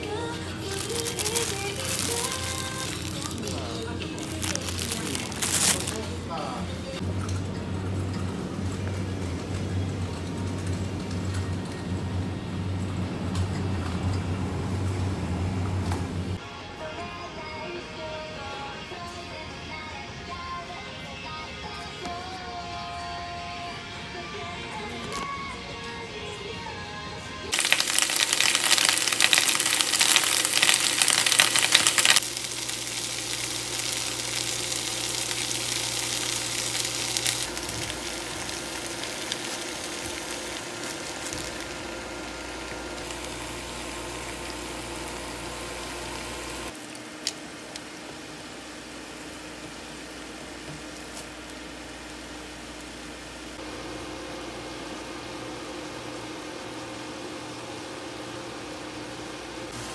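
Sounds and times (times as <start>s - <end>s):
food sizzling in a pan: 0.5s - 6.0s, 27.5s - 46.8s.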